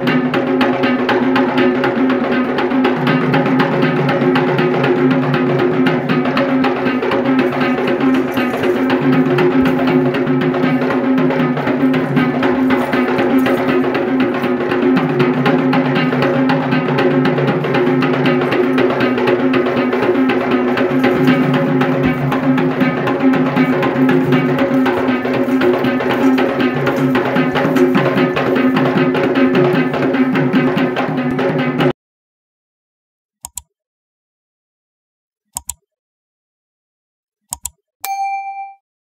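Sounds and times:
drums in a fast dense rhythm: 0:00.0 - 0:32.0
short bell-like ding: 0:38.0 - 0:38.8.

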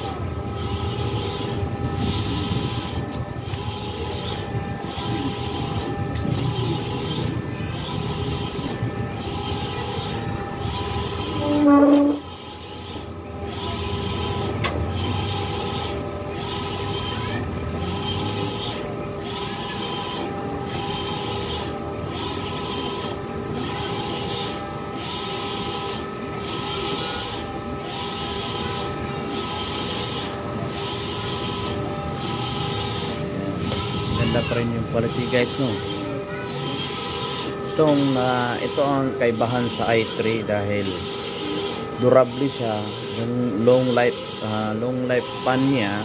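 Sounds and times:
steady machine hum: 0:00.0 - 0:46.0
short loud tone: 0:11.4 - 0:12.2.

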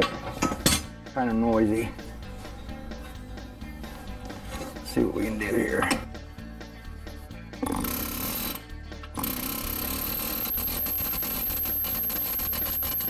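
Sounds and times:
pneumatic air hammer rattling: 0:07.6 - 0:13.0
thin high whine: 0:09.2 - 0:13.0.

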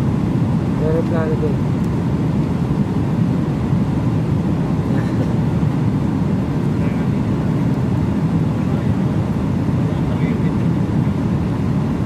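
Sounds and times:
airliner cabin noise: 0:00.0 - 0:12.0.

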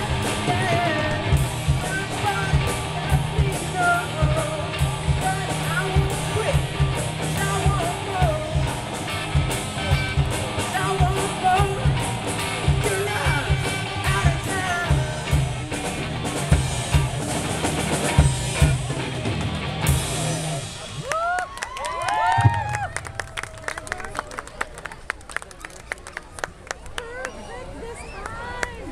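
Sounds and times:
lead vocalist singing: 0:00.0 - 0:09.1, 0:09.9 - 0:15.6
drum kit steady beat: 0:00.0 - 0:21.1
live rock band playing: 0:00.0 - 0:21.1.

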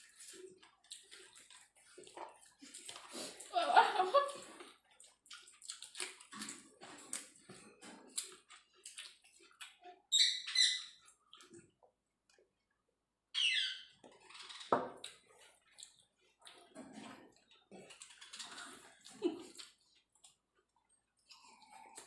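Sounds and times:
chewing and lip smacking: 0:00.0 - 0:03.6, 0:04.2 - 0:10.1, 0:10.9 - 0:12.5, 0:14.0 - 0:22.0
high squeaky chirps: 0:10.1 - 0:11.0, 0:13.4 - 0:14.7.

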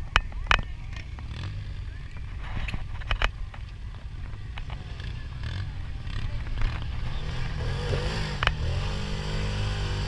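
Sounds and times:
utv engine revving: 0:04.7 - 0:10.0.

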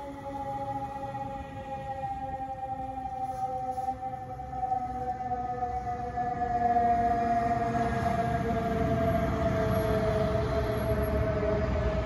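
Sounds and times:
city traffic: 0:00.0 - 0:12.0
fire truck rumble: 0:00.0 - 0:12.0.

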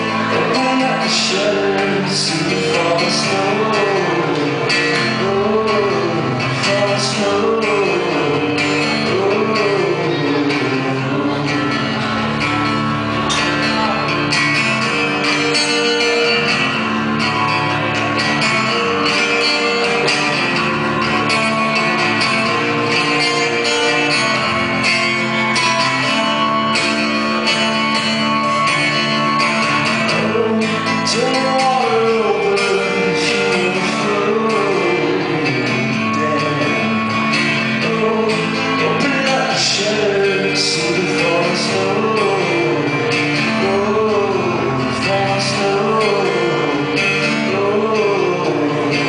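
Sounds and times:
man singing: 0:00.0 - 0:12.4, 0:28.5 - 0:49.0
acoustic guitar strummed: 0:00.0 - 0:49.0.

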